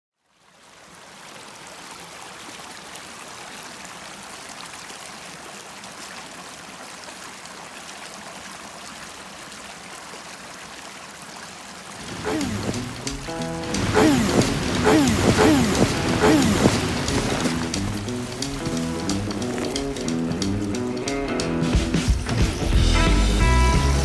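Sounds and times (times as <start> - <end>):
creek flowing: 0.2 - 22.3
music: 12.8 - 14.8, 15.9 - 24.0.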